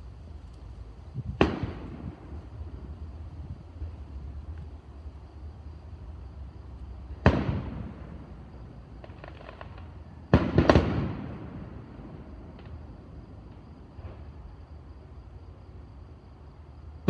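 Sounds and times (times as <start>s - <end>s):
faint fireworks crackles: 0.0s - 17.0s
fireworks bursting: 1.2s - 3.9s, 7.1s - 14.3s.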